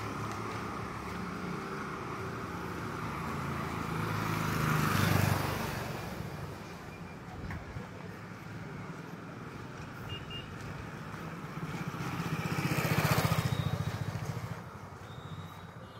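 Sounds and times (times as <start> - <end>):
vehicle passing: 0.0 - 6.6.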